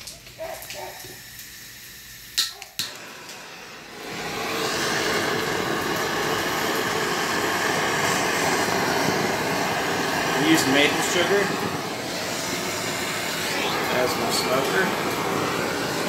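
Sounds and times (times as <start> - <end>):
torch flame hissing: 0.4 - 16.0
torch igniter clicks: 2.3 - 3.5.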